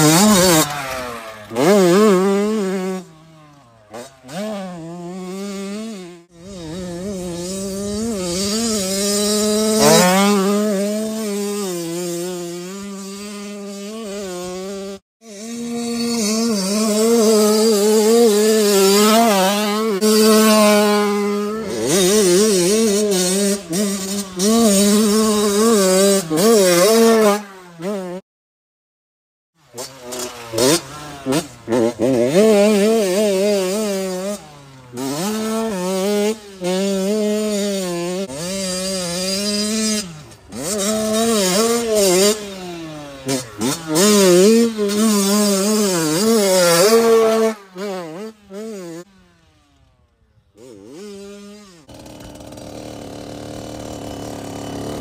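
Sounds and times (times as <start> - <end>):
two-stroke motorcycle engine revving: 0.0 - 28.2, 29.6 - 55.0.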